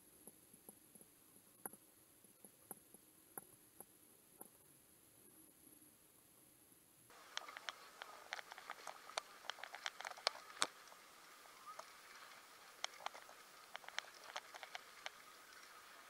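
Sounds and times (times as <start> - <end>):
bicycle clicking and rattling: 7.3 - 10.8.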